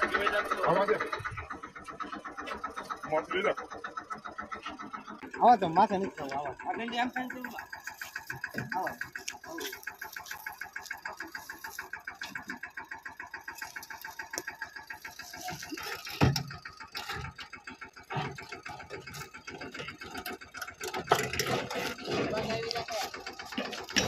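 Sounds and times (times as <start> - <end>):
diesel engine running: 0.0 - 24.0
loud engine knock: 0.0 - 24.0.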